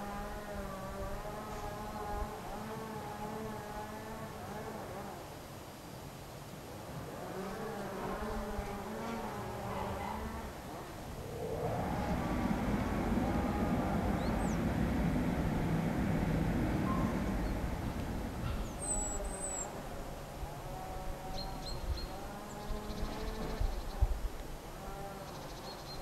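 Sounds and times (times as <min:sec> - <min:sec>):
low rumble: 0:10.4 - 0:19.4.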